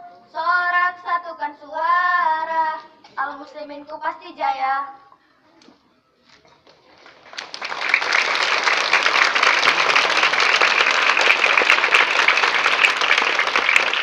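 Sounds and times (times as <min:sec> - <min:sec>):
children clapping: 0:06.6 - 0:14.0.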